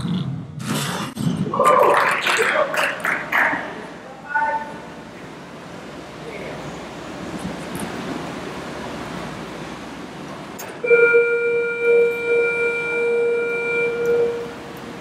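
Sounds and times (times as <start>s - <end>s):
arena noise hum: 0.0s - 15.0s
scoreboard horn blaring: 10.8s - 15.0s.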